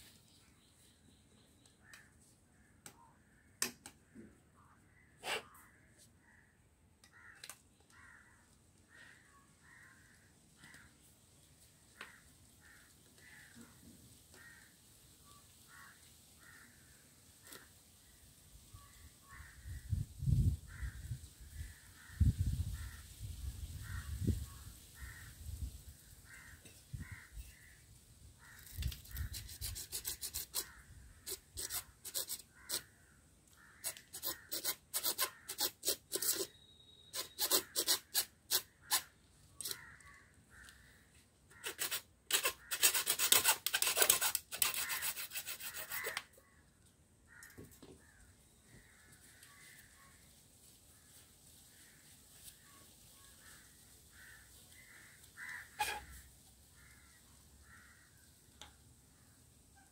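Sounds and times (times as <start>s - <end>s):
hacksaw cutting plastic pipe: 28.7s - 32.8s, 33.8s - 36.6s, 37.2s - 39.8s, 41.5s - 46.3s, 55.8s - 56.0s.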